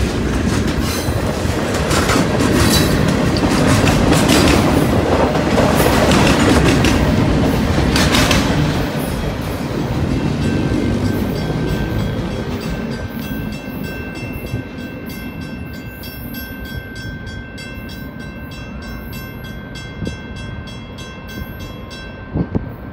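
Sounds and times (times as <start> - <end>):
freight train cars rumbling: 0.0 - 22.9
high ringing tone: 10.2 - 22.9.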